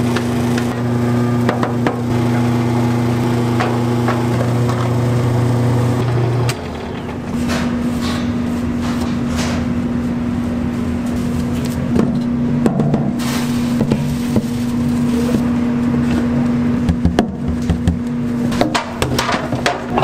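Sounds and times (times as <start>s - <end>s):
machine motor humming: 0.0s - 8.0s.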